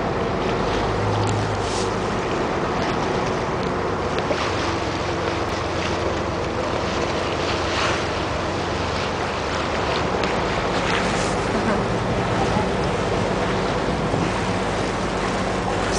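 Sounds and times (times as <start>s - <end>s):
boat engine humming: 0.0s - 15.9s
water rushing along hull: 0.0s - 15.9s
wind buffeting microphone: 5.2s - 15.9s.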